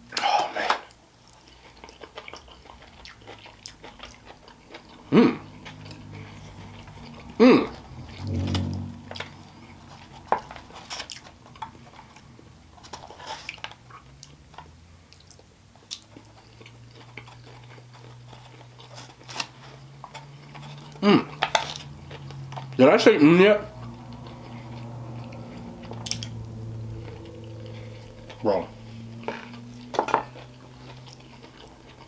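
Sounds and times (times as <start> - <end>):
person chewing food: 0.0 - 22.8, 23.7 - 32.0
person humming: 5.1 - 5.4.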